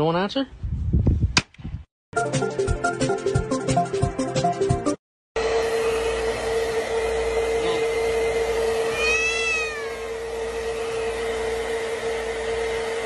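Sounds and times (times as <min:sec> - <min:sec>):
hair dryer blowing: 0:05.4 - 0:13.0
cat meowing: 0:08.9 - 0:10.2.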